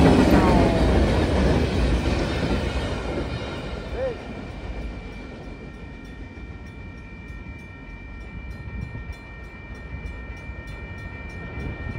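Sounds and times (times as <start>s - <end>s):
crossing warning bell ringing: 3.7s - 11.9s.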